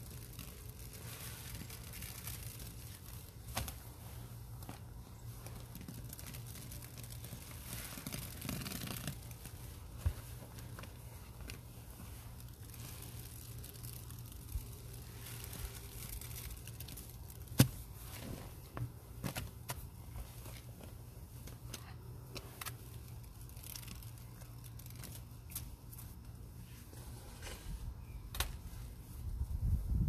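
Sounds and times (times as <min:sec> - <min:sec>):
small clicks and crackles: 0:00.0 - 0:27.6.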